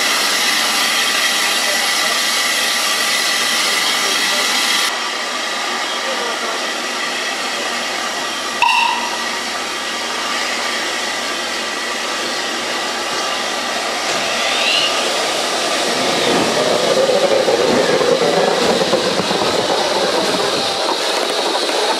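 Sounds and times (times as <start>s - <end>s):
steam locomotive hissing: 0.0s - 8.6s.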